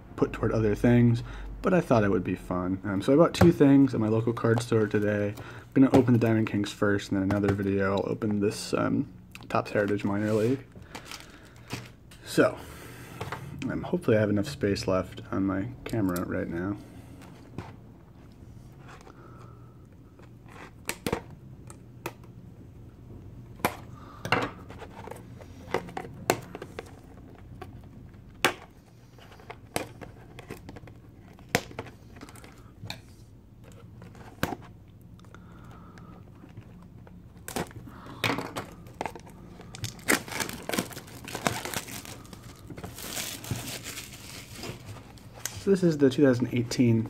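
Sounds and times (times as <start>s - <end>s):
plastic wrap crinkling and tearing: 38.8s - 45.6s.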